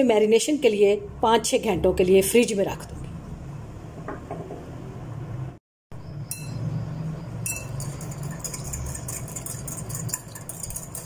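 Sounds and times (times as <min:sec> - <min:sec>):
spoon clinking in glass bowl: 0:07.4 - 0:11.0.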